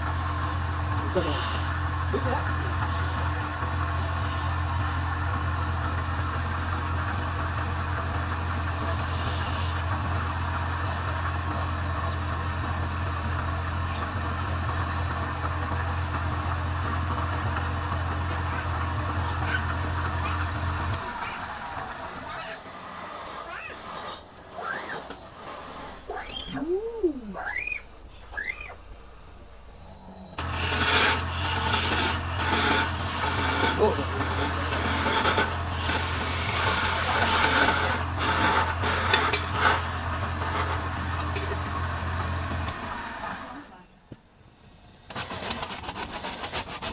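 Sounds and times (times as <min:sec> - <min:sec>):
wood lathe humming: 0:00.0 - 0:26.5, 0:27.4 - 0:43.6, 0:45.1 - 0:46.9
sanding hiss on spinning wood: 0:01.1 - 0:01.8, 0:30.4 - 0:39.8
chisel scraping wood: 0:30.4 - 0:41.6, 0:45.1 - 0:46.9.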